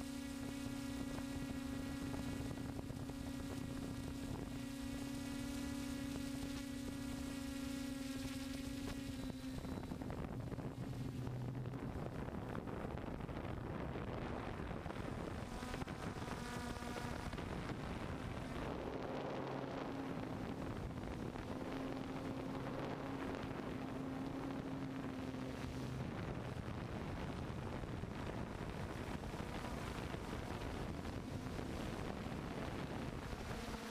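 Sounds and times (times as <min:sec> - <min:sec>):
drone motors whirring: 0:00.0 - 0:12.0
wind rushing over microphone: 0:00.0 - 0:33.9.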